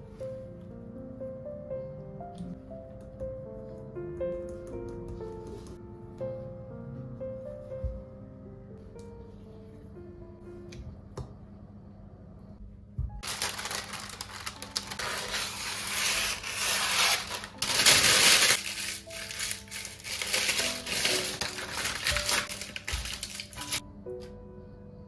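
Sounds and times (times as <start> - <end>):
baking paper crinkling: 13.2 - 23.8.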